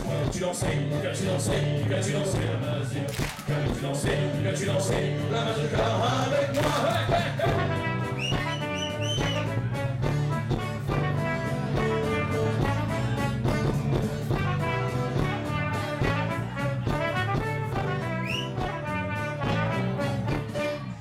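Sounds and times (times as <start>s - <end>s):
steady drum beat: 2.4s - 4.3s, 6.6s - 18.9s
live band playing: 3.1s - 21.0s
brass horn leading: 6.2s - 21.0s.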